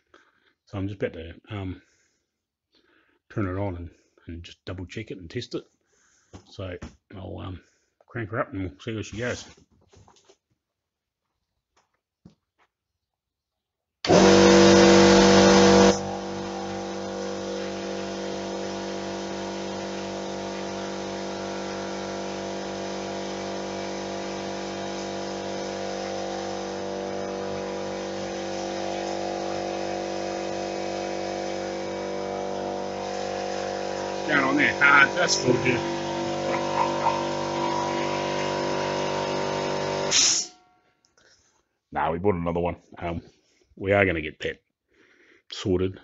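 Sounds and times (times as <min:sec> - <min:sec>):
air compressor running: 0:14.1 - 0:40.6.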